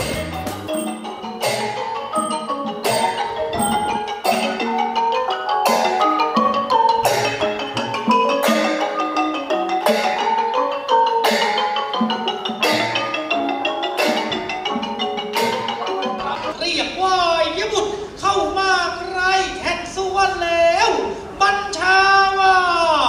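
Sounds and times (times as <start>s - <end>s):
sharp percussion beat: 0.0s - 4.8s
xylophone percussion ensemble music: 0.0s - 16.6s.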